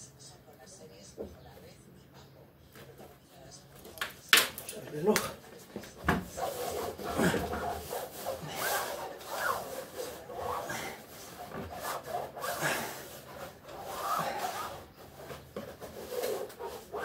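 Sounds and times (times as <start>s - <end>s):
hand rubbing treadmill deck: 5.0s - 17.0s.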